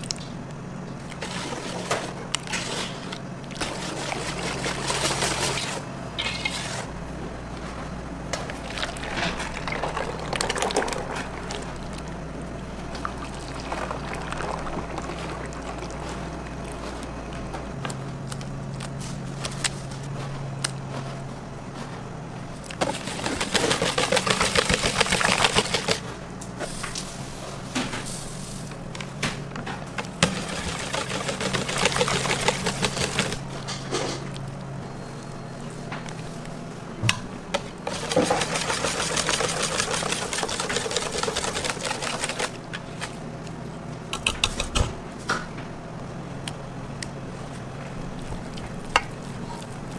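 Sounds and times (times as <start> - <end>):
whisk clattering in metal bowl: 22.9 - 26.0, 30.2 - 33.4, 37.9 - 42.6.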